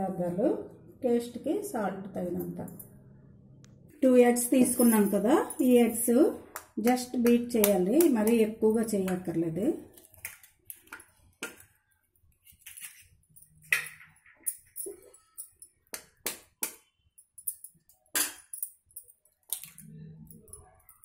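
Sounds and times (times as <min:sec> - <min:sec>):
eggs cracking on bowl rim: 0:09.9 - 0:11.8, 0:13.6 - 0:19.9.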